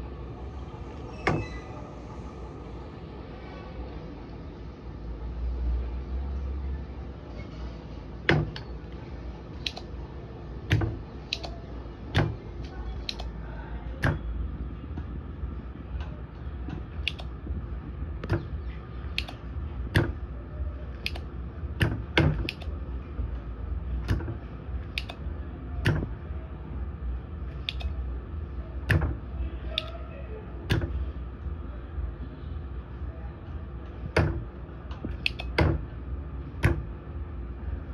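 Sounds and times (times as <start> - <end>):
steady low hum: 0.0 - 37.9
soldering iron metallic clicks: 17.0 - 17.3, 19.2 - 19.4, 25.0 - 25.2.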